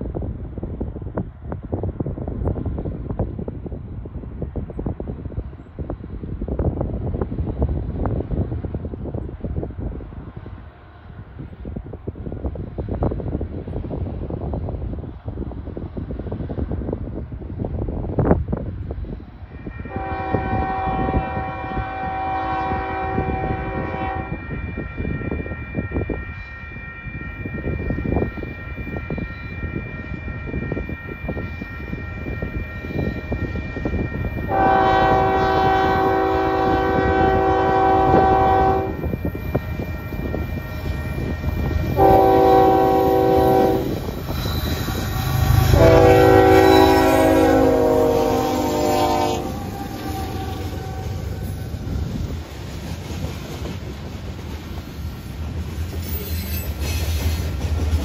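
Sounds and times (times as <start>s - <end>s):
locomotive air horn blasts: 19.6s - 24.8s, 34.5s - 39.1s, 42.0s - 44.1s, 44.8s - 51.5s
locomotive rumble: 27.0s - 58.0s.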